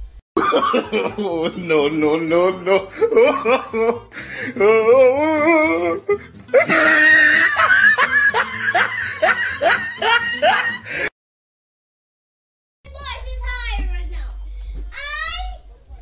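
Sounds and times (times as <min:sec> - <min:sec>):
loud laughter: 0:00.4 - 0:11.1.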